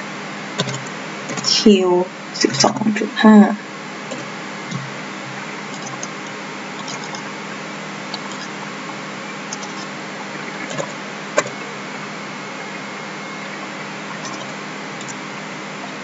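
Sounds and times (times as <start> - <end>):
faint hum: 0.0 - 16.0
mouse and keyboard clicks: 0.6 - 1.5, 5.7 - 6.1.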